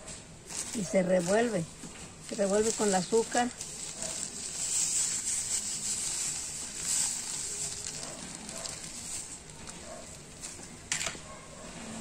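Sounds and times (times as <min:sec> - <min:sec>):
sugar pouring into bowl: 0:02.3 - 0:10.4.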